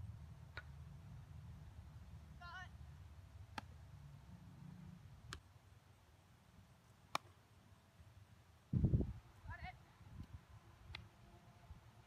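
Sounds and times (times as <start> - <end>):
wind rumble on microphone: 8.7 - 10.4.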